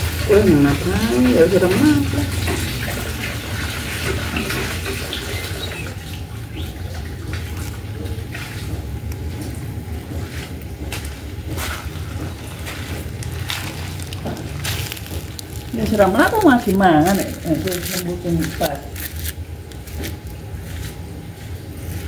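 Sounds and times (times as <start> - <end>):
rain pattering: 0.0 - 20.5
raindrop taps: 5.1 - 20.4.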